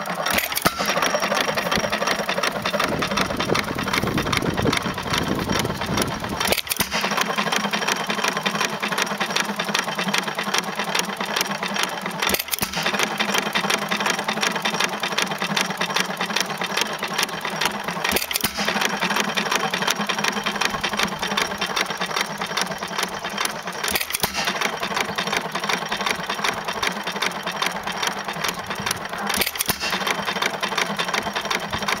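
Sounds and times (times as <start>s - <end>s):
gas engine running: 0.0s - 32.0s
valve gear clicking: 0.3s - 7.8s, 11.8s - 14.1s, 17.5s - 22.0s, 22.6s - 32.0s.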